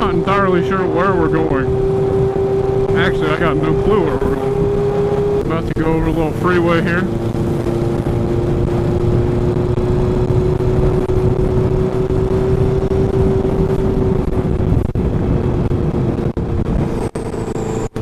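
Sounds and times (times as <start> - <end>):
motorcycle engine cruising: 0.0 - 18.0
wind noise: 0.0 - 18.0.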